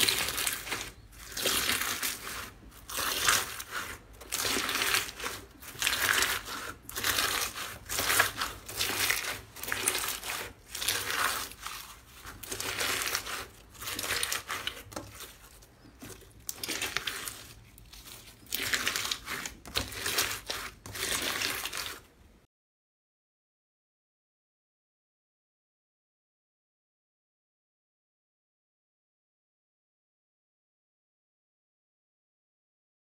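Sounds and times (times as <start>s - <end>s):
hands squishing crunchy slime: 0.0s - 22.1s.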